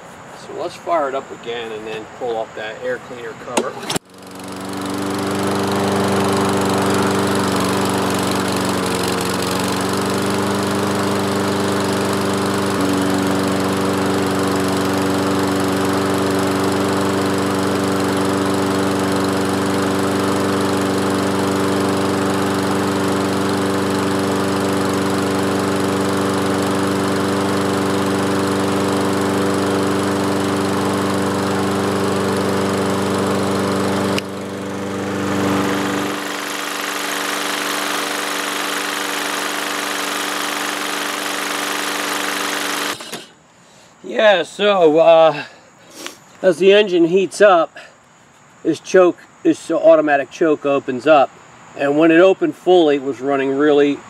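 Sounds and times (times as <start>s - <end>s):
lawn mower engine running: 3.6s - 46.1s.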